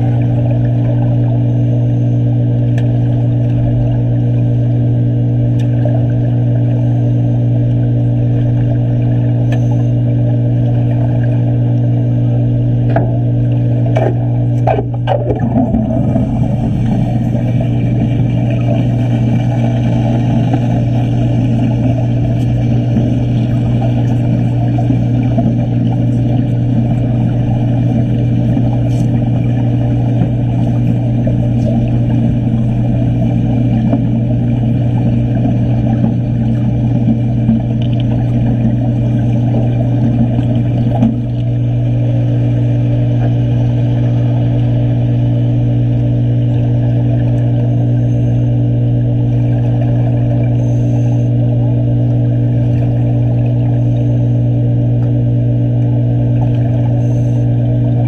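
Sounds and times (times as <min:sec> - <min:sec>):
constant low hum: 0:00.0 - 0:58.0
low machine drone underwater: 0:00.0 - 0:58.0
welding arc crackling and buzzing: 0:12.2 - 0:42.7.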